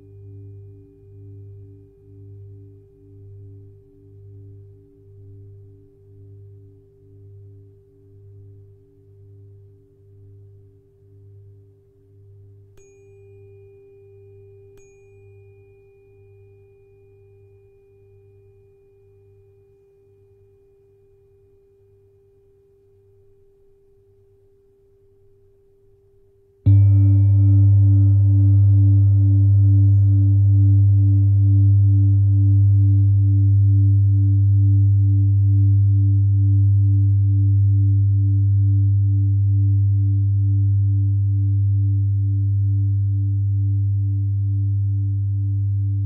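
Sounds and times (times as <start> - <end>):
singing bowl hum: 0.0 - 25.3, 26.6 - 46.0
tuning fork tone: 0.0 - 46.0
singing bowl struck: 26.7 - 36.6.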